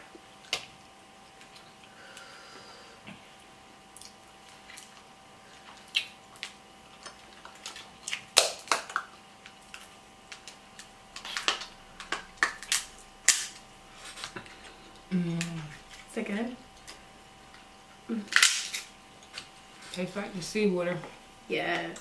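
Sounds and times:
crab shells cracking: 5.6 - 13.6, 18.3 - 19.5.

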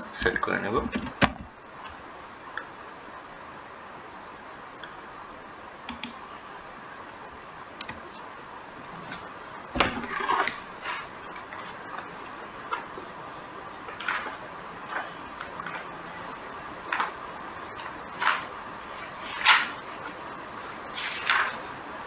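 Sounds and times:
steady background hiss: 0.0 - 22.0
knocks and rustling: 0.8 - 2.0, 9.0 - 12.0.

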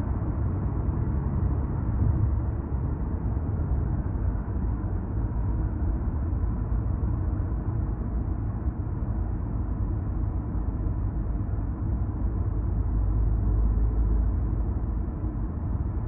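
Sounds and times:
tyre and road noise inside car: 0.0 - 16.0.

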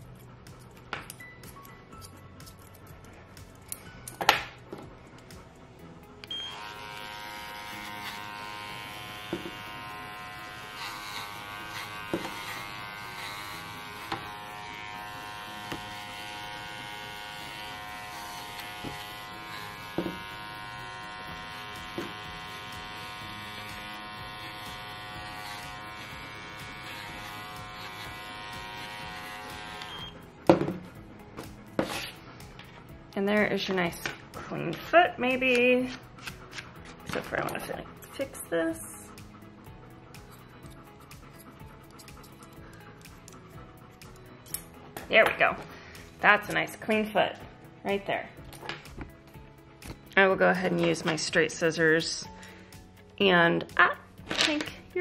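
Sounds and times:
electric clippers buzzing: 6.1 - 32.2.

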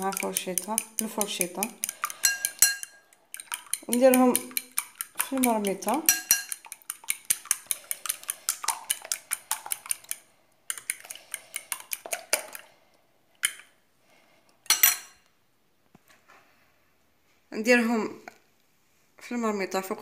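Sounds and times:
fork beating eggs in a bowl: 0.0 - 12.7, 13.4 - 13.7.

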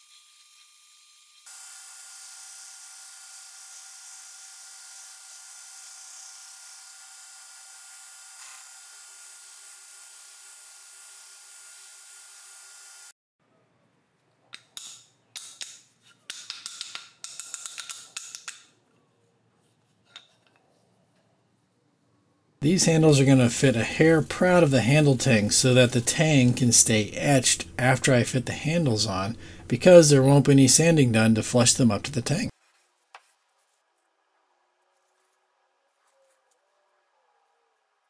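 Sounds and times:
power tool whining: 0.0 - 13.1.

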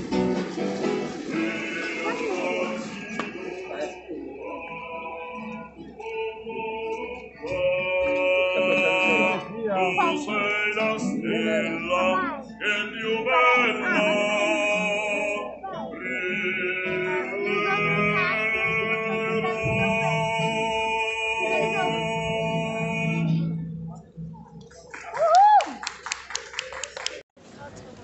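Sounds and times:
instrumental accompaniment: 0.0 - 24.9
man singing long held notes: 1.3 - 23.7.

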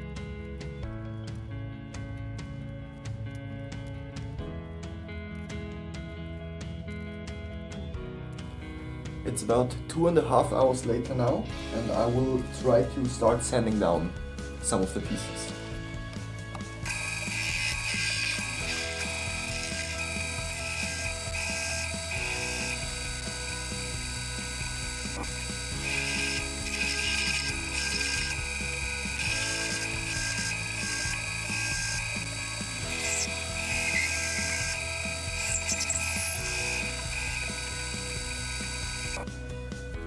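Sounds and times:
background music with bass line: 0.0 - 40.0
disc sander whining: 16.0 - 39.4.

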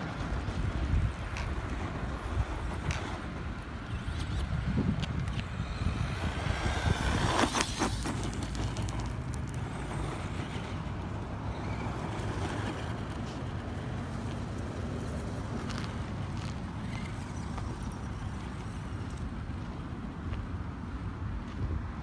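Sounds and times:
wind rumble on microphone: 0.0 - 22.0
tyres spraying loose stones: 6.6 - 10.7.

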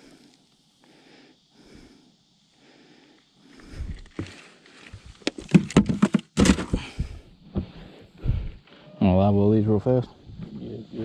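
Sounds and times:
dull thumps: 3.9 - 8.6.

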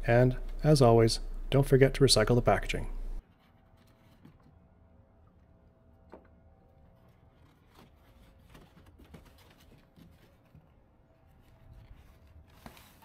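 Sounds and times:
low steady rumble: 0.0 - 3.2
cardboard rustling and scraping: 3.2 - 4.7, 6.8 - 13.0.

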